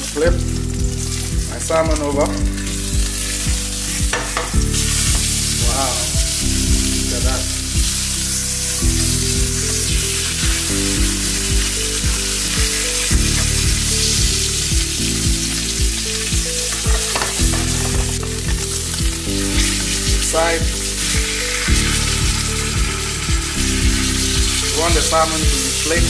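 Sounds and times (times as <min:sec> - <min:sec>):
background music with steady beat: 0:00.0 - 0:26.0
fish sizzling in hot oil: 0:00.0 - 0:26.0.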